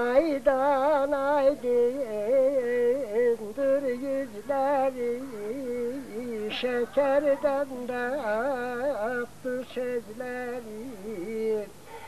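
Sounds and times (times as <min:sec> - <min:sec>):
person singing ornamented melody: 0:00.0 - 0:11.8
singer breathing: 0:11.8 - 0:12.0.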